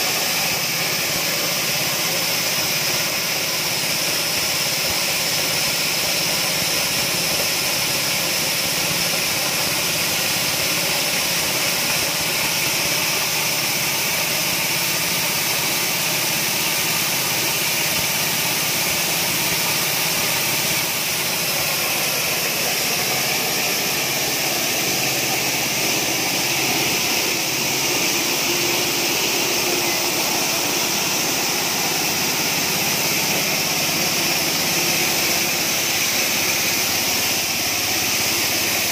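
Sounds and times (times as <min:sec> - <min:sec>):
small petrol engine running: 0:00.0 - 0:38.9.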